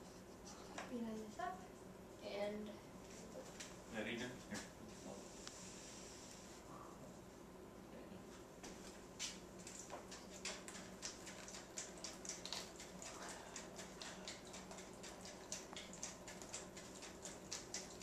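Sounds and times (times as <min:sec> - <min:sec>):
water dripping and ticking: 0:09.7 - 0:18.0.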